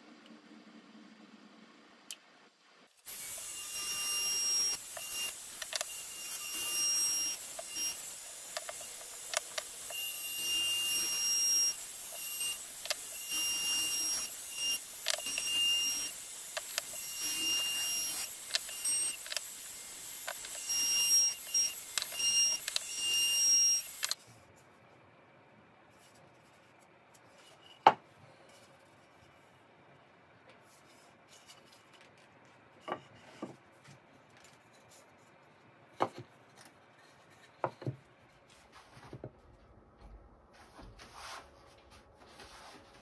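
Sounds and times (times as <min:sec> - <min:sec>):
router whining cutting wood: 0:03.1 - 0:24.2.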